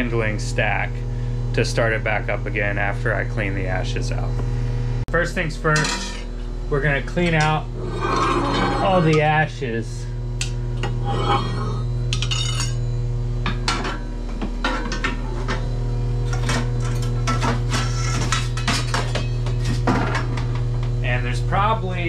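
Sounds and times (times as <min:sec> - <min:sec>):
steady low hum: 0:00.0 - 0:22.0
metal tools clinking on steel: 0:11.1 - 0:12.8.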